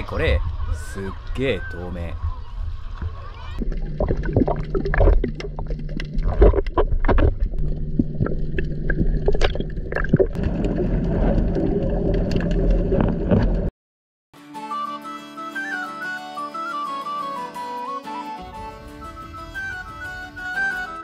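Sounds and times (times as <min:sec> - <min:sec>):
low rumble: 0:02.1 - 0:13.7
underwater gurgling and bubbles: 0:03.0 - 0:13.7.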